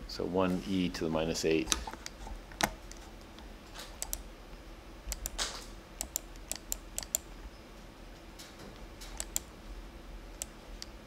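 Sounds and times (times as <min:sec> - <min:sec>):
keyboard keystrokes: 0:05.1 - 0:07.2, 0:09.0 - 0:09.5.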